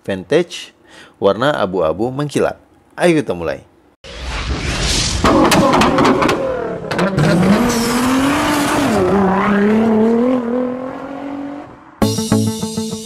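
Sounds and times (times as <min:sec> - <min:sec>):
sharp engine pops: 0:05.1 - 0:07.3
car engine revving: 0:05.2 - 0:12.0.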